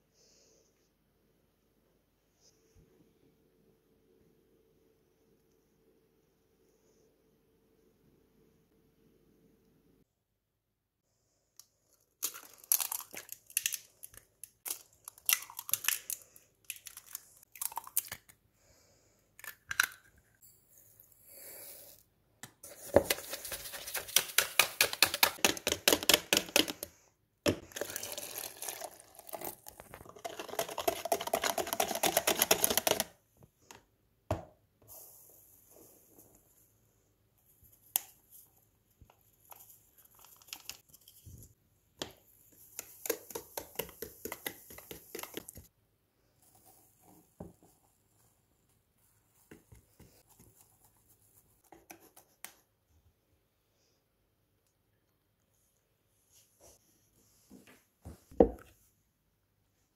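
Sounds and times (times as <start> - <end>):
spoon beating in plastic bowl: 22.8 - 26.8, 30.0 - 33.1, 42.8 - 45.7.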